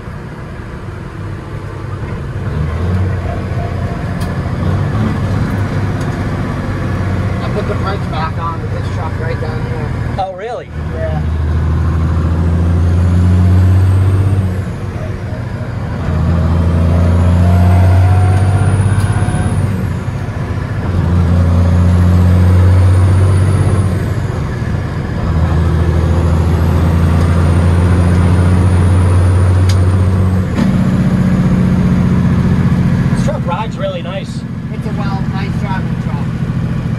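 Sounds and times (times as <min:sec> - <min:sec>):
diesel truck engine pulling hard: 0:00.0 - 0:36.9
high turbo whistle: 0:16.8 - 0:19.9.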